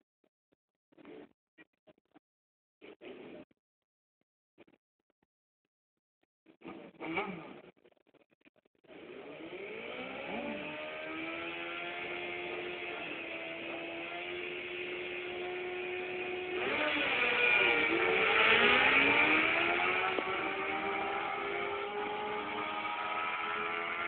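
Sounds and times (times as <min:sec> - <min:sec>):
motorcycles accelerating through gears: 0:08.9 - 0:24.0
motorcycles revving: 0:09.0 - 0:24.0.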